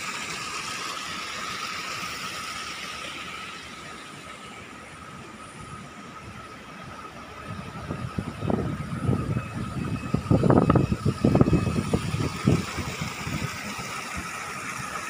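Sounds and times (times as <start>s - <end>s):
wind buffeting microphone: 7.4s - 14.6s.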